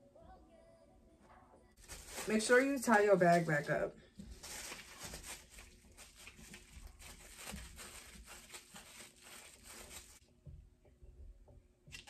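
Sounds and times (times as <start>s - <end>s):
plastic bag crinkling: 1.8s - 10.2s.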